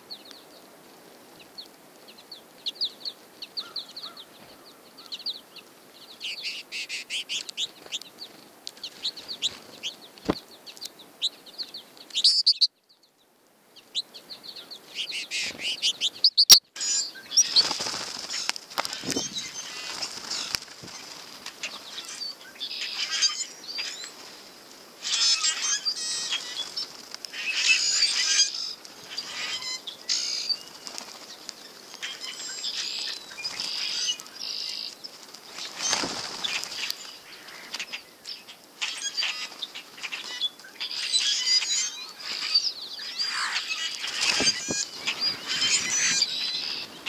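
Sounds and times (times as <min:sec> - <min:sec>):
starlings chattering: 0:01.6 - 0:12.7, 0:13.8 - 0:47.0
wings flapping: 0:07.3 - 0:10.4, 0:15.4 - 0:38.0, 0:43.2 - 0:47.0.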